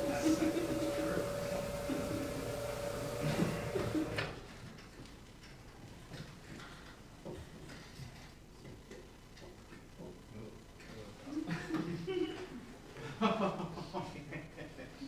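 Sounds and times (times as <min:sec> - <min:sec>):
steady tone over speakers: 0:00.0 - 0:04.4.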